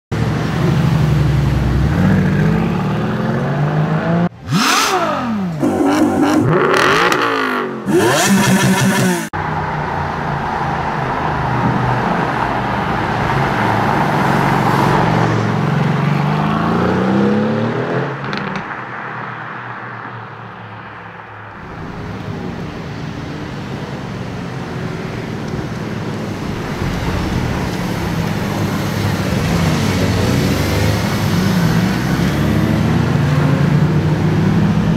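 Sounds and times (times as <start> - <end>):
car engine accelerating hard: 1.2 - 9.3.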